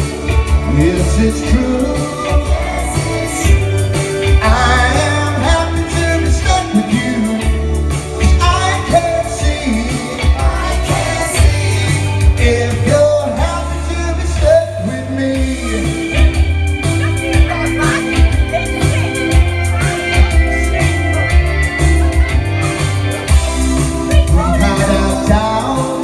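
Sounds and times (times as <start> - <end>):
amplified instrumental accompaniment: 0.0 - 26.0
man singing a ballad: 0.5 - 16.5, 24.2 - 26.0.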